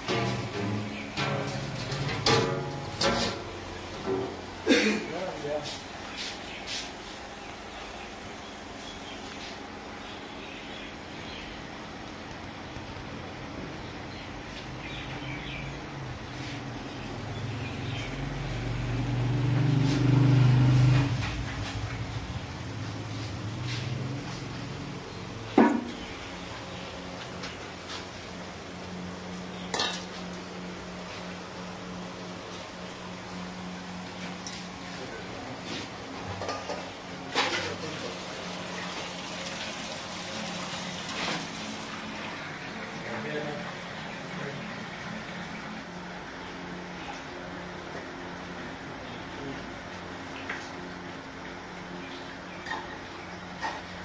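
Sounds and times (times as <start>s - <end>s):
low motor hum: 15.0s - 37.2s.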